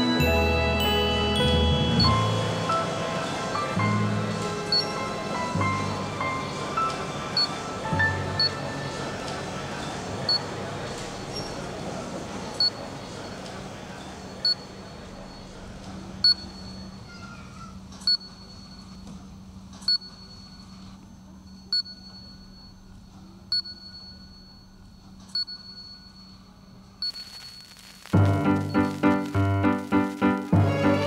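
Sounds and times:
music: 0.0 - 10.0, 28.2 - 31.0
barcode scanner beeps: 27.0 - 30.5.

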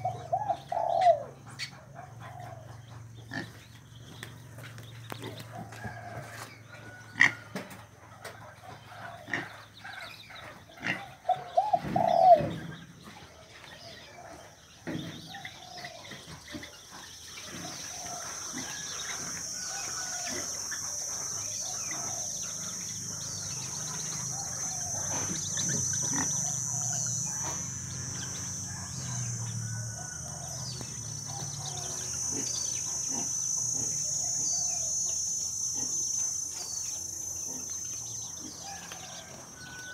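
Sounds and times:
swamphens calling: 0.0 - 6.1, 7.0 - 39.9
high-pitched hiss: 17.5 - 39.9.

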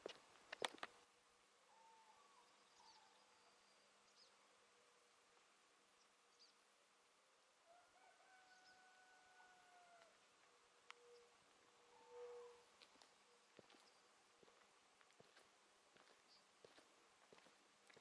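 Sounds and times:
faint high bird chirps: 1.7 - 4.4, 10.9 - 12.6.

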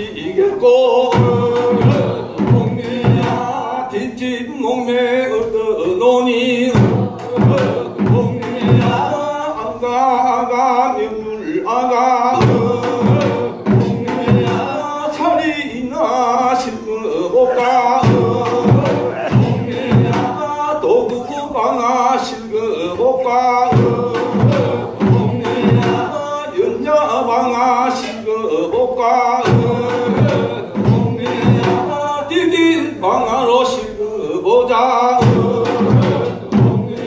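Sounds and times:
men singing a work song: 0.0 - 37.0
sharp knocks beating time: 18.0 - 20.4.

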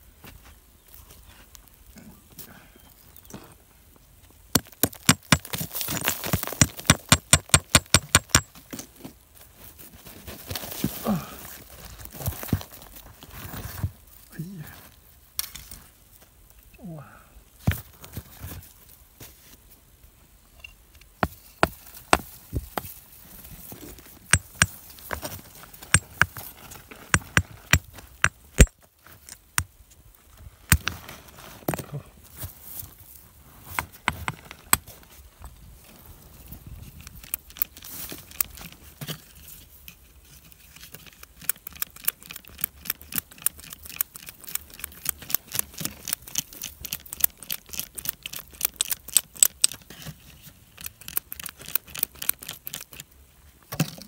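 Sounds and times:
hand tool chipping stone: 4.5 - 8.9, 24.3 - 24.8, 25.8 - 26.4, 27.0 - 29.7, 41.4 - 49.8.

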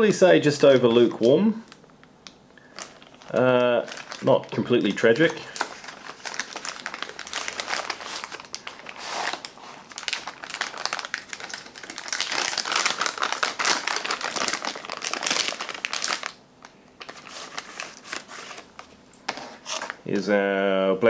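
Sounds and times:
plastic bag crinkling: 2.6 - 20.0.

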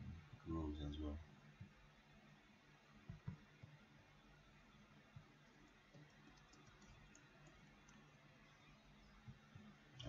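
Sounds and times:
low steady hum: 0.0 - 10.0
faint soft taps: 3.1 - 3.8.

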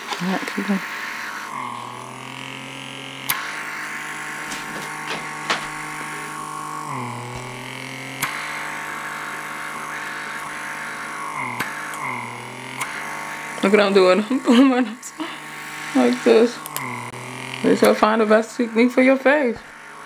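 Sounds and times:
suction motor humming: 0.0 - 20.0
sharp clicks: 3.2 - 3.6, 7.3 - 8.7, 11.4 - 13.7, 16.1 - 18.0.

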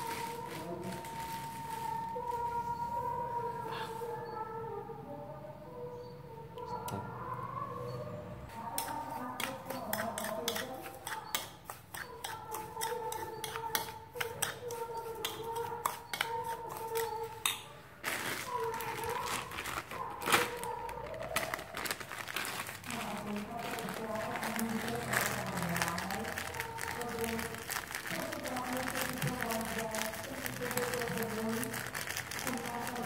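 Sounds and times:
metal spoon stirring in bowl: 8.5 - 17.8, 21.4 - 33.0.

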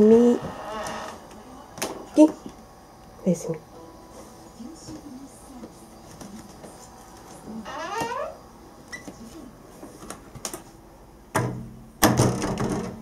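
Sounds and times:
door rattling: 11.4 - 13.0.

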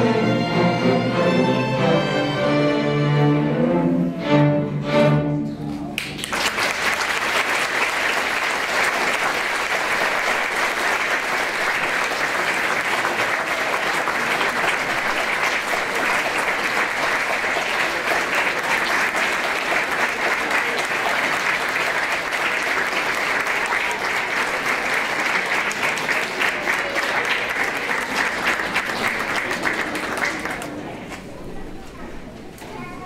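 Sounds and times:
string orchestra playing chords: 0.0 - 5.9
audience applause: 6.0 - 31.2.

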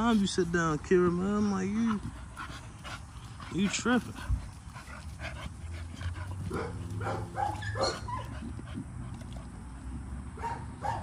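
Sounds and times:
dogs yipping and whining: 4.8 - 8.8.

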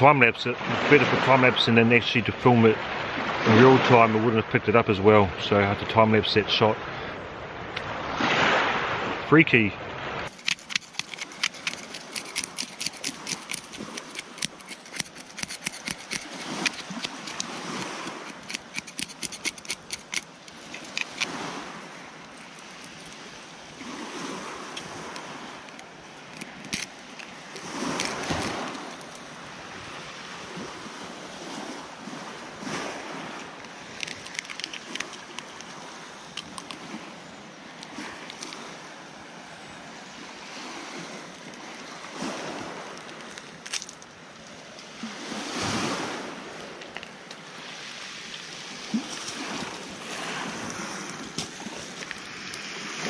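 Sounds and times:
surf washing: 0.0 - 53.0
knife scraping fish scales: 10.3 - 29.4, 33.4 - 37.2, 37.8 - 38.8.

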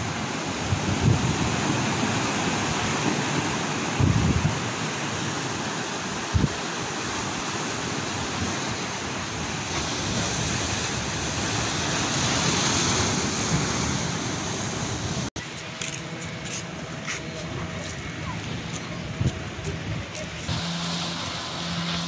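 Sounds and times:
wind buffeting microphone: 0.0 - 4.9, 16.1 - 20.5
wind and sea water rushing: 0.0 - 22.0.

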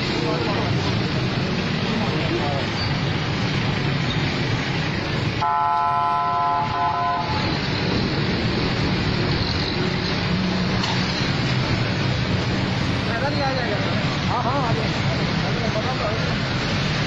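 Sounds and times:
street traffic: 0.0 - 17.0
vehicle horn: 5.4 - 7.5.

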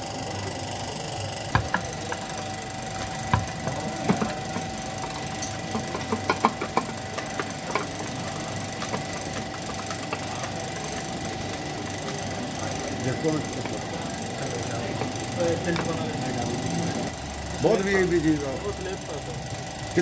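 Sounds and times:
hand tools clinking on metal: 1.8 - 10.6.

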